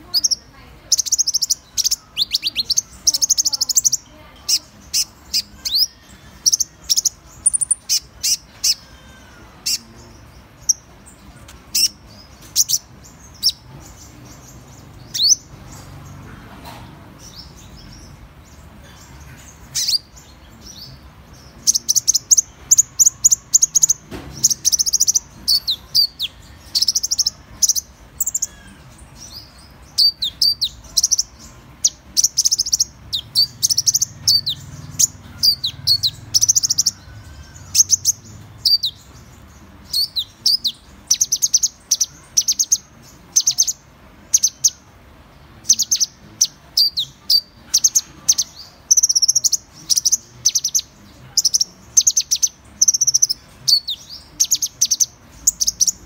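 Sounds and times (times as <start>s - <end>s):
bird chirping twitters: 0.0s - 56.0s.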